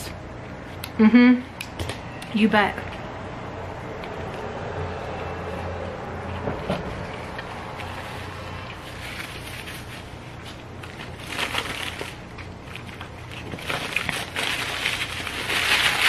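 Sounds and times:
paper wrapper crinkling: 7.2 - 16.0.

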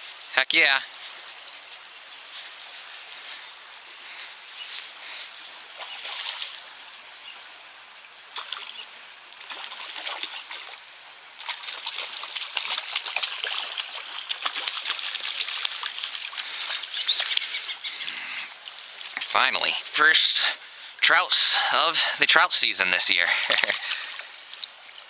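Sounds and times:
fish splashing in water: 5.6 - 6.8, 8.3 - 10.8, 11.4 - 17.8.

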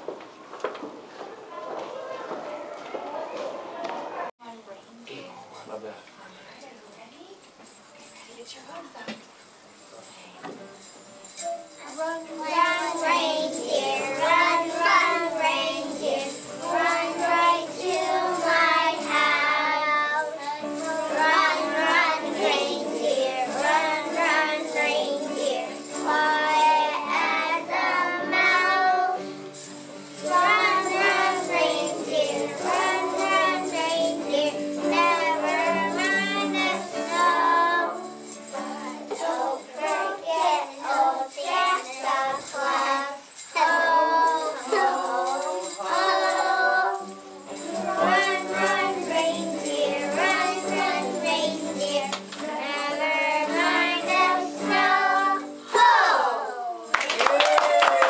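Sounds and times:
children singing a christmas carol: 11.4 - 56.9
children singing a carol: 11.8 - 56.7.

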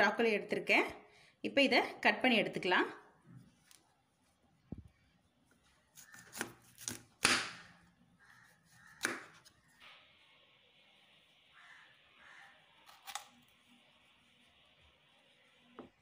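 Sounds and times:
knife cutting on wooden board: 6.0 - 7.6.

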